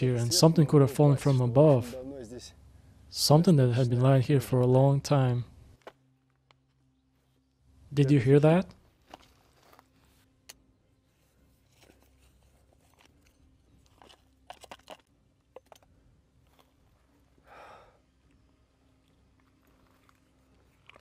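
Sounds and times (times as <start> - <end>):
stones clicking together: 12.7 - 15.9.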